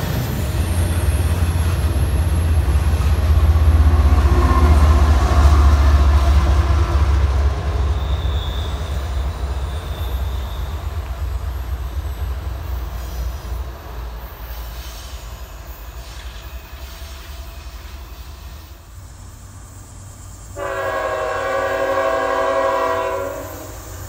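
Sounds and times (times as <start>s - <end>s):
freight train rumbling past: 0.0s - 24.0s
wheel squeal on rails: 7.4s - 18.9s.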